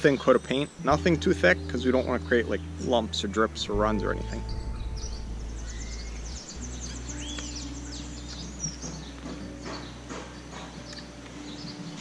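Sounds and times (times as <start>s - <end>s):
small birds chirping: 0.0s - 12.0s
steady low hum: 1.6s - 8.7s.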